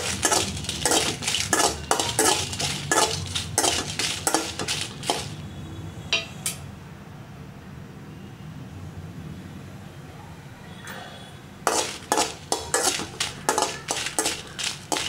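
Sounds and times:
metal spoon scraping a pan: 0.0 - 5.4, 11.6 - 15.0.

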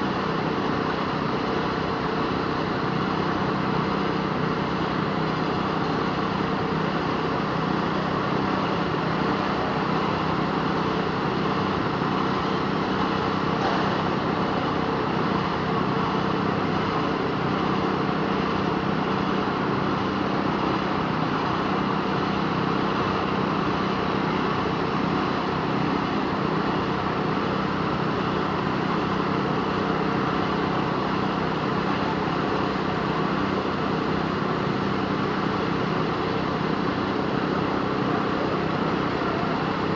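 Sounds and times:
engine humming steadily: 0.0 - 39.9.

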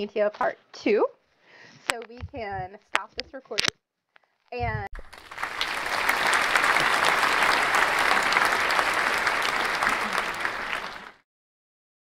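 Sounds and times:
crowd applauding: 5.0 - 11.2.

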